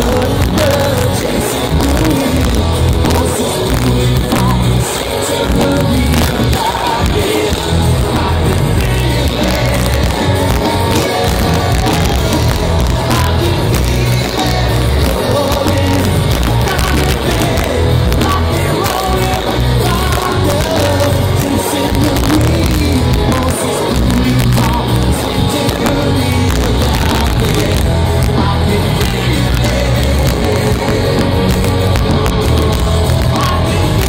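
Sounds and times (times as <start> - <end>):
lead vocal singing: 0.0 - 34.0
rock band playing live: 0.0 - 34.0.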